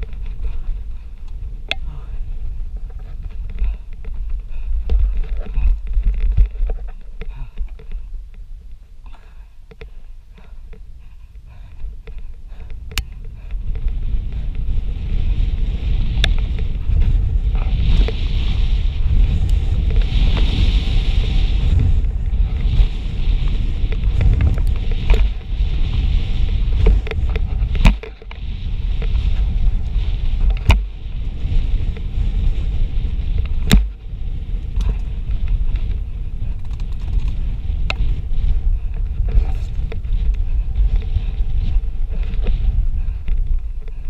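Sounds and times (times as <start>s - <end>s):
bike rattling: 0.0s - 44.0s
wind buffeting microphone: 0.0s - 44.0s
sharp clacks from bike: 12.0s - 44.0s.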